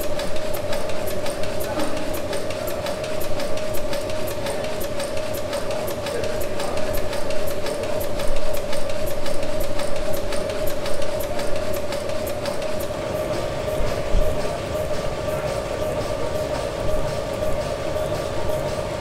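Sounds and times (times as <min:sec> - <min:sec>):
rapid even clicking: 0:00.0 - 0:13.0
steam engine running: 0:00.0 - 0:19.0.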